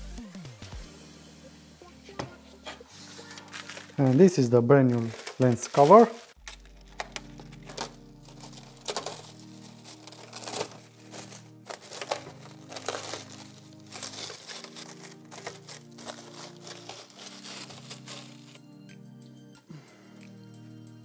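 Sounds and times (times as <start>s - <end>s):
background music: 0.0s - 21.0s
plastic wrap crinkling: 3.0s - 18.6s.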